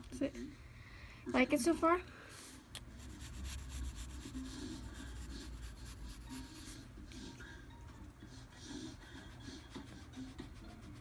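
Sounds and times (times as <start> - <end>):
pencil scratching on paper: 3.0 - 7.4, 8.6 - 11.0.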